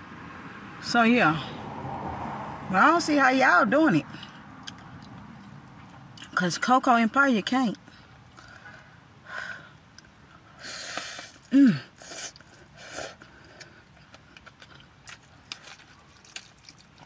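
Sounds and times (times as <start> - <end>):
chewing: 10.0 - 17.0
noodles being slurped: 14.4 - 17.0.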